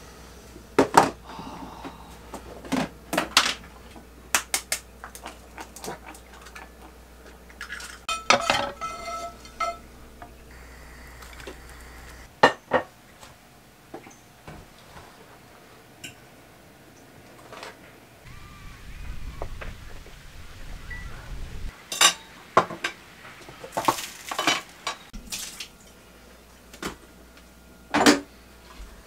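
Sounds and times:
dishes and cutlery clinking: 0:07.7 - 0:09.9, 0:21.9 - 0:23.0.

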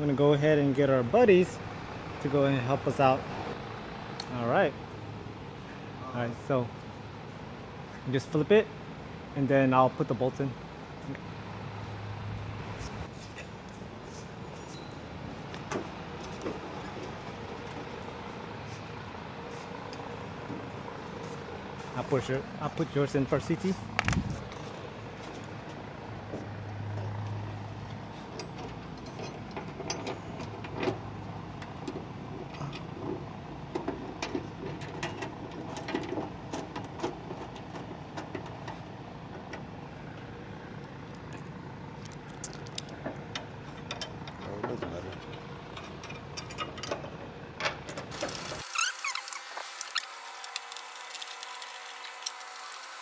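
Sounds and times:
workshop background noise: 0:09.3 - 0:53.0
small metal clicks and taps: 0:41.1 - 0:47.8.

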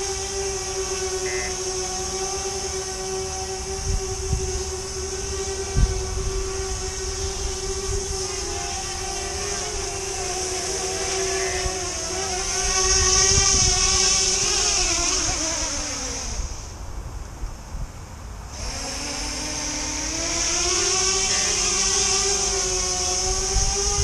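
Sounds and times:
high propeller hiss: 0:00.0 - 0:16.8, 0:18.5 - 0:24.0
drone motors buzzing hum: 0:00.0 - 0:24.0.

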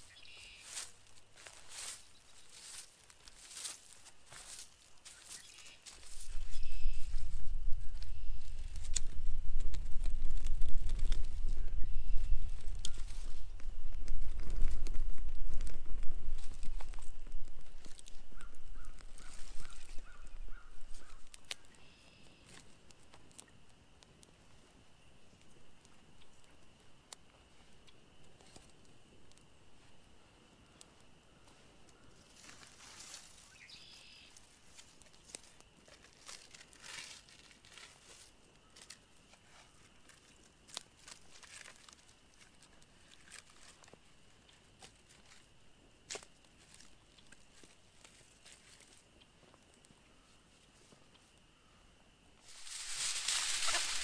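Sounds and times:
bird calling short notes: 0:00.0 - 0:00.8, 0:33.5 - 0:34.3
campfire crackling: 0:00.8 - 0:33.7, 0:34.3 - 0:50.0, 0:51.3 - 0:54.0
sticks snapping: 0:08.7 - 0:11.3, 0:20.9 - 0:21.8
small fire ticking: 0:12.4 - 0:19.7, 0:20.3 - 0:32.2
sharp pops and snaps: 0:21.1 - 0:21.8, 0:22.4 - 0:24.4.

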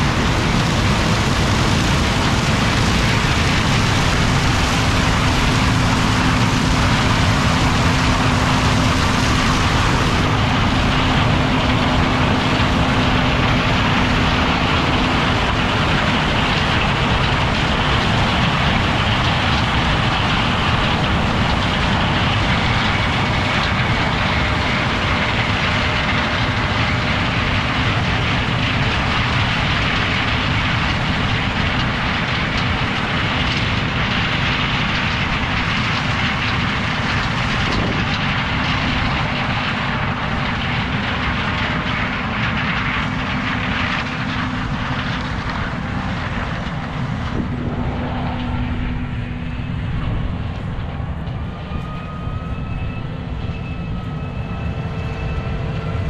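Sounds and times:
combine harvester running: 0:00.0 - 0:56.0.

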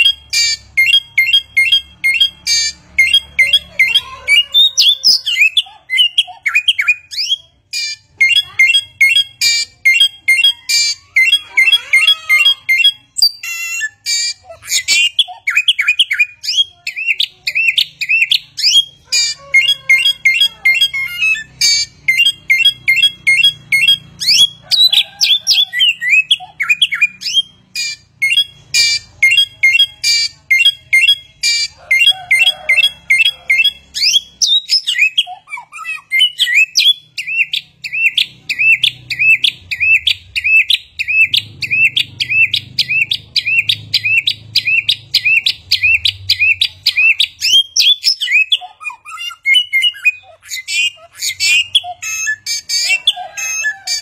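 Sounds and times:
songbird singing: 0:00.0 - 0:54.0.

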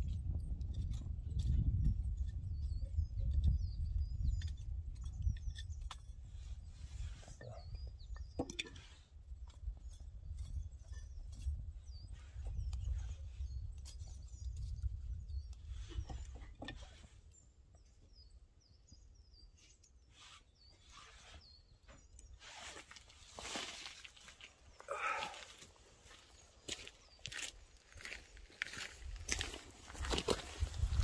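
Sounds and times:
wind rumbling on microphone: 0:00.0 - 0:17.3, 0:26.8 - 0:31.0
small birds chirping: 0:00.0 - 0:31.0.

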